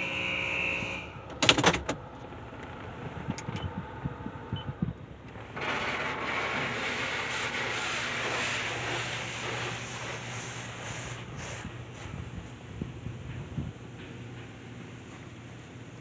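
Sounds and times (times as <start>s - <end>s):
water spray hitting car: 5.4s - 12.0s.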